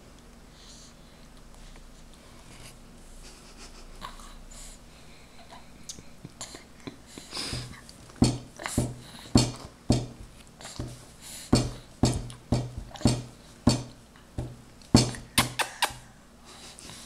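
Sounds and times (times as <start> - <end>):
baby chewing mouth smacks: 14.8 - 16.1.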